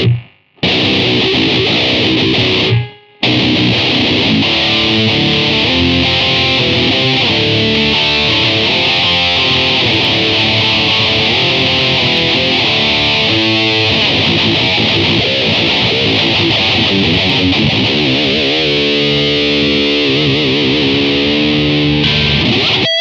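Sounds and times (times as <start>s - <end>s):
electric guitar riffs and chords: 0.0s - 23.0s.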